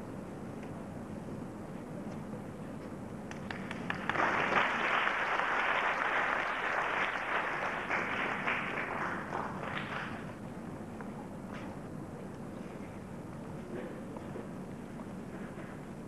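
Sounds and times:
audience applauding: 3.3 - 10.3.

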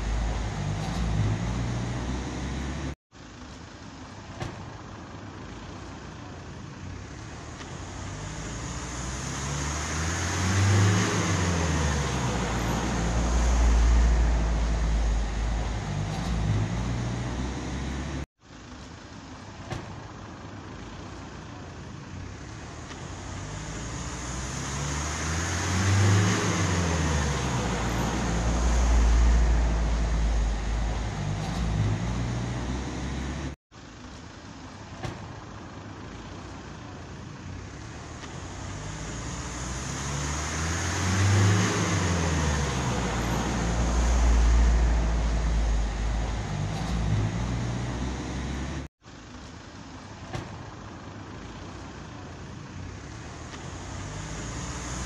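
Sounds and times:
vehicle passing: 7.8 - 18.2, 23.2 - 33.6, 38.4 - 48.9.

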